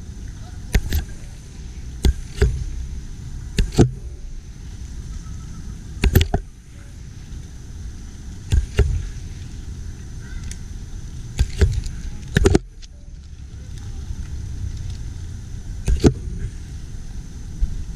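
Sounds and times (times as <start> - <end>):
wind and camera handling rumble: 0.6 - 1.4, 3.5 - 4.4, 6.0 - 6.5, 8.3 - 16.7
sharp knocks and clicks: 0.7 - 1.1, 2.0 - 2.7, 3.6 - 4.0, 6.0 - 6.5, 8.5 - 9.1, 11.4 - 12.8, 15.8 - 16.3.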